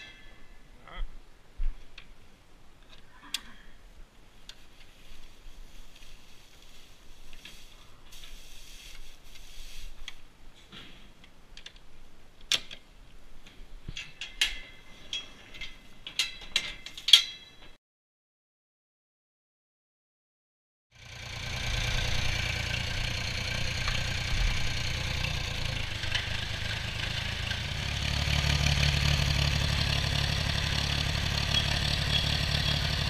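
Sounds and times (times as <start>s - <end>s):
metallic clinks and clanks: 13.9s - 17.7s.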